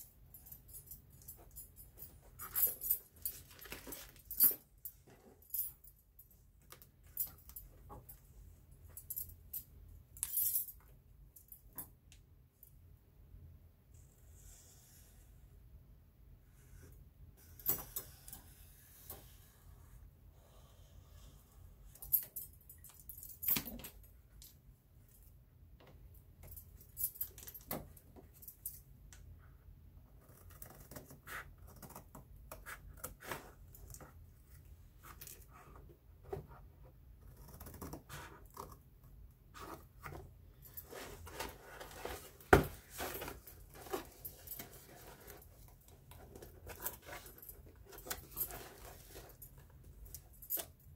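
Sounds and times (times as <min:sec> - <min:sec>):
paper and cardboard rustling: 0:03.1 - 0:04.3.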